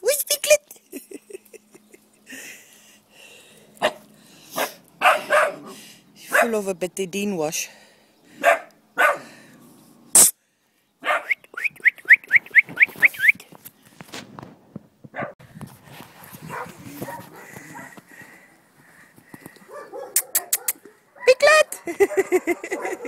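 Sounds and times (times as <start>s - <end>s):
small dog yapping: 4.6s - 5.7s, 11.0s - 11.4s, 19.8s - 21.4s.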